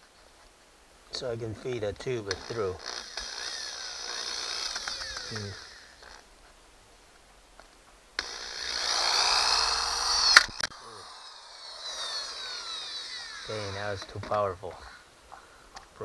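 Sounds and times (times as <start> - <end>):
electric drill boring through plastic: 2.3 - 6.3, 8.2 - 14.5.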